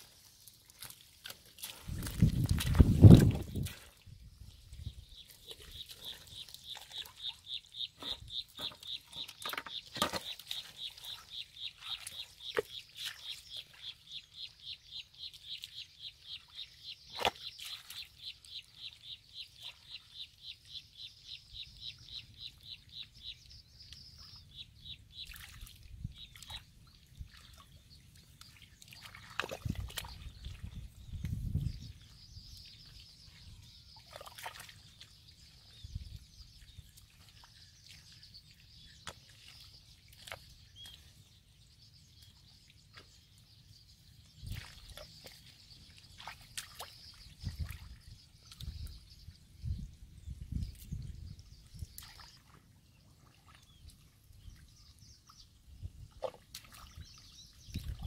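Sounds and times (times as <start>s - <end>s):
hands squelching in wet mud: 0.0s - 4.0s, 27.3s - 31.5s, 34.0s - 35.6s, 44.4s - 49.0s.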